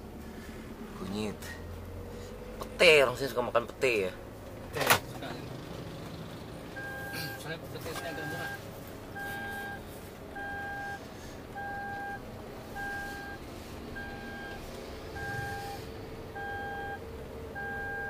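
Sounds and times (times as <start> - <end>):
engine and road noise: 0.0 - 18.0
car warning chime beeping: 6.7 - 9.8, 10.4 - 13.4, 14.0 - 18.0.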